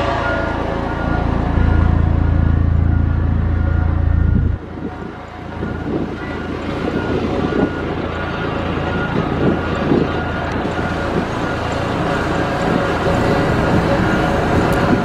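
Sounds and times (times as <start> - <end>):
heavy diesel engine under load: 0.0 - 15.0
deep hum: 0.6 - 4.6.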